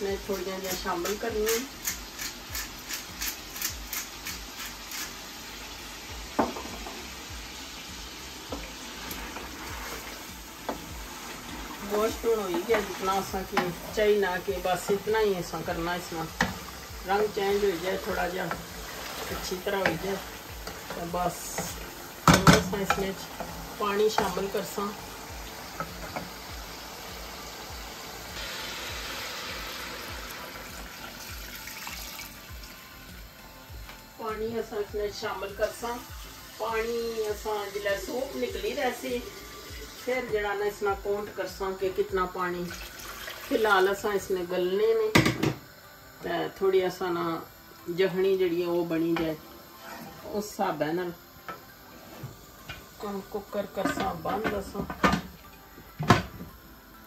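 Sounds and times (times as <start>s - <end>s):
meat sizzling in a pot: 0.0s - 57.0s
water pouring and splashing: 8.6s - 13.4s, 17.8s - 20.4s, 28.4s - 32.8s, 42.7s - 43.9s.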